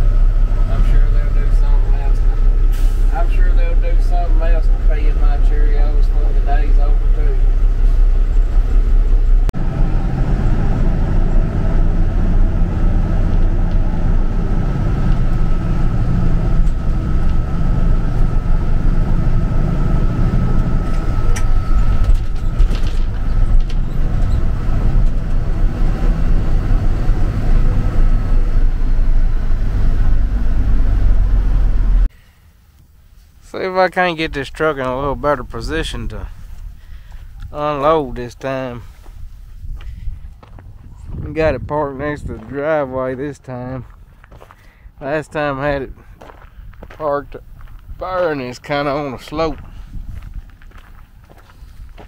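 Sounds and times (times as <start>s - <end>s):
truck diesel engine running: 0.0s - 32.1s.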